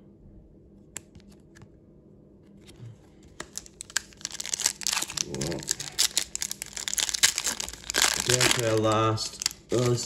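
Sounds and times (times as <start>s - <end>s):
foil wrapper crinkling and tearing: 3.4s - 10.0s.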